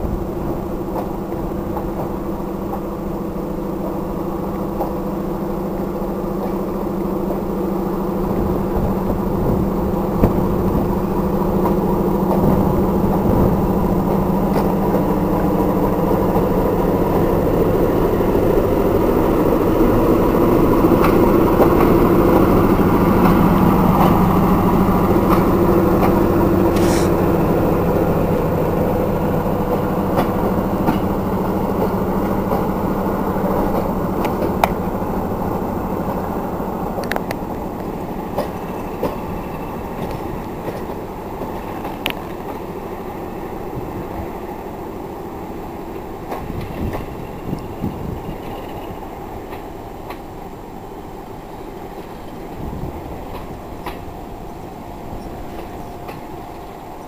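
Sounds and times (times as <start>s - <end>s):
diesel locomotive engine drone: 0.0s - 57.0s.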